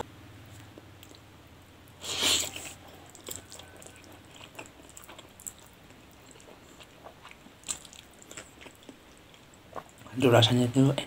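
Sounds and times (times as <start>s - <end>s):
chewing with wet mouth clicks: 0.5s - 1.2s, 2.4s - 10.1s
person slurping noodles: 2.0s - 2.8s.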